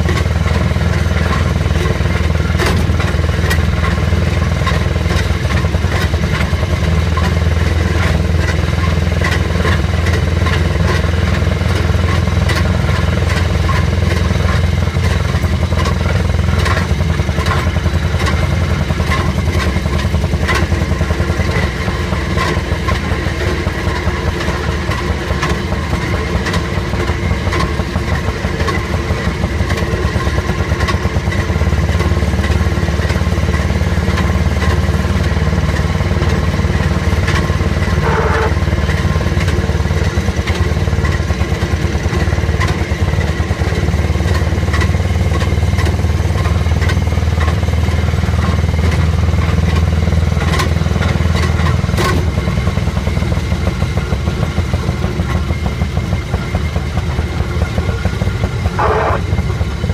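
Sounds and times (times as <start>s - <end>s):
small engine running: 0.0s - 59.9s
wheels clicking and clacking: 0.0s - 59.9s
brief higher tone: 38.0s - 38.6s, 58.7s - 59.4s.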